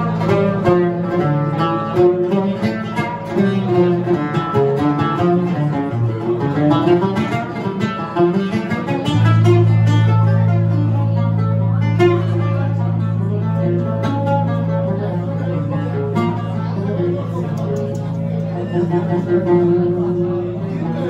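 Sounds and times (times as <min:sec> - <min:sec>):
acoustic guitar accompaniment: 0:00.0 - 0:21.0
plucked string melody: 0:00.0 - 0:21.0
low held chord: 0:09.2 - 0:21.0.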